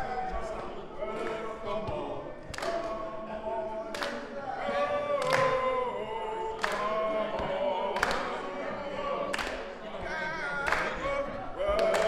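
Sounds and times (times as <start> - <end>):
men singing a cappella: 0.0 - 12.0
hand clap: 2.4 - 3.0, 3.9 - 4.4, 5.1 - 5.8, 6.6 - 8.5, 9.2 - 9.8, 10.6 - 11.1, 11.7 - 12.0.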